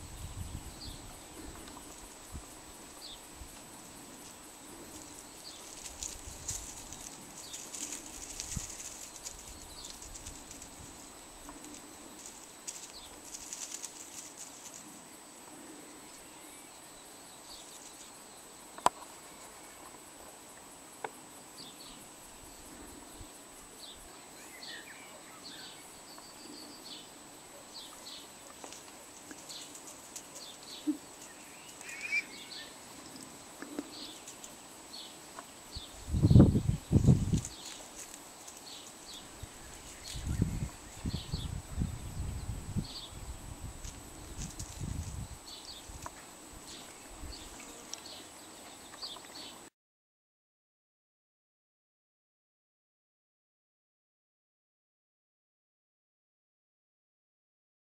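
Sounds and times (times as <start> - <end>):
leaf litter rustling: 4.3 - 14.8
faint bird chirps: 30.4 - 32.8.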